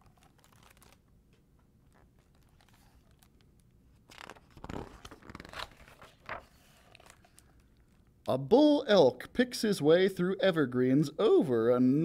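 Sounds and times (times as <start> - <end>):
book page turning: 0.0 - 8.0.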